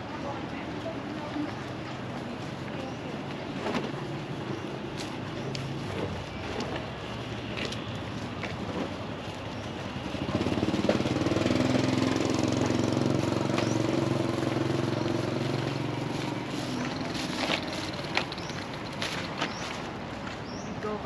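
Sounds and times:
street noise: 0:00.0 - 0:21.0
motorbike engine passing: 0:10.0 - 0:19.8.

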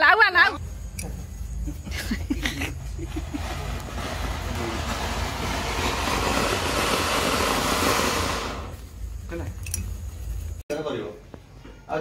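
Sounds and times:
firework fountain hissing: 0:02.4 - 0:09.3.

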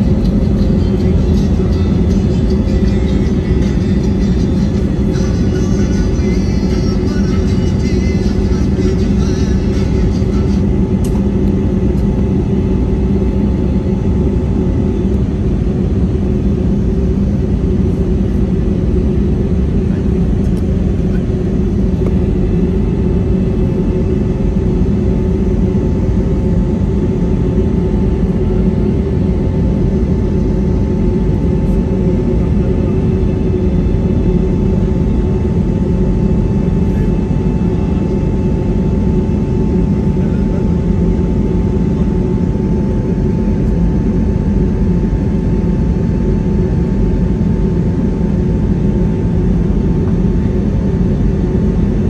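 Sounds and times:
jet engines rumbling in cabin: 0:00.0 - 0:52.0.

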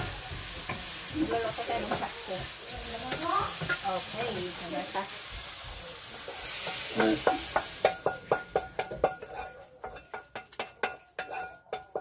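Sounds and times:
food sizzling in a frying pan: 0:00.0 - 0:12.0
utensil scraping and knocking pan: 0:06.2 - 0:12.0.

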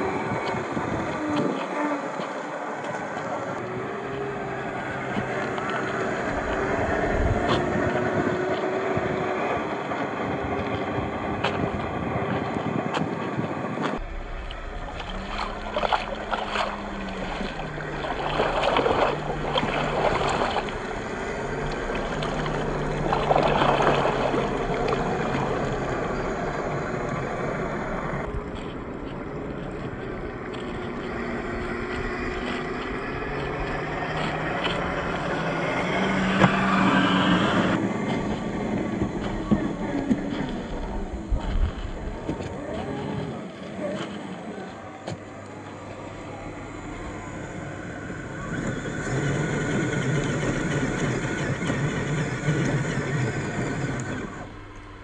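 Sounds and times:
electric motors whining: 0:00.0 - 0:55.0
truck splashing through mud puddle: 0:14.1 - 0:28.4, 0:29.1 - 0:44.9.

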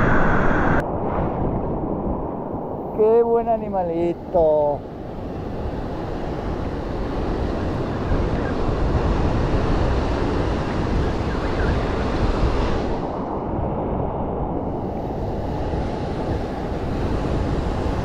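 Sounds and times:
wind buffeting microphone: 0:00.0 - 0:18.0
surf washing around rocks: 0:14.6 - 0:18.0.

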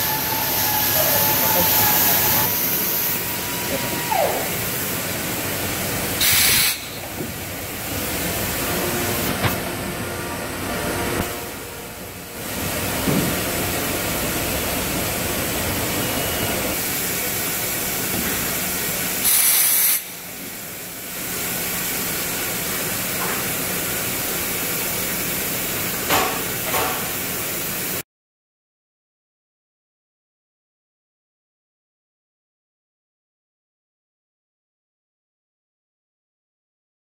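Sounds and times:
machine running: 0:00.0 - 0:19.2
compressed air hiss: 0:06.1 - 0:07.2, 0:19.2 - 0:20.2.

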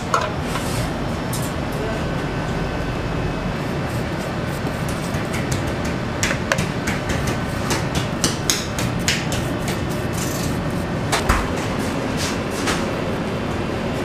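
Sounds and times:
kitchen hum: 0:00.0 - 0:14.0
pastry brush tapping bread: 0:04.1 - 0:10.2.

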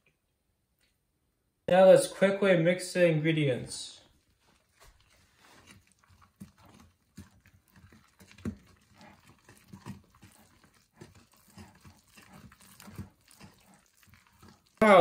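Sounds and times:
spoon stirring thick batter: 0:04.1 - 0:15.0.

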